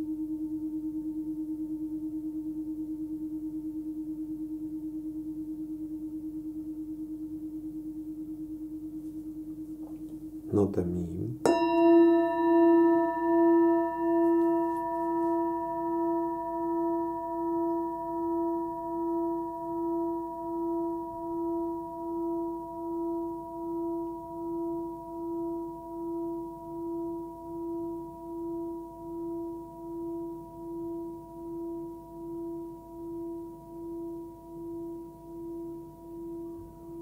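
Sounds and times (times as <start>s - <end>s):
singing bowl ringing: 0.0s - 10.6s, 11.4s - 37.0s.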